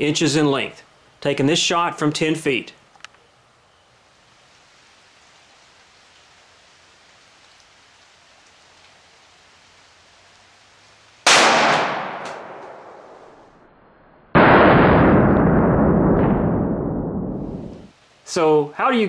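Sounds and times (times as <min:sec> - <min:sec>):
pistol shot: 0:11.3 - 0:13.2, 0:14.4 - 0:16.6
dull boom: 0:14.3 - 0:17.9.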